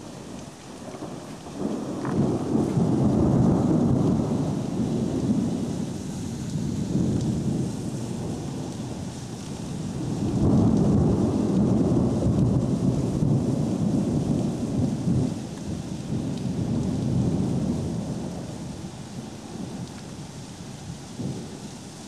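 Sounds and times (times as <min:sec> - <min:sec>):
thunder rumbling: 0:00.0 - 0:20.3
rain hissing: 0:00.0 - 0:22.0.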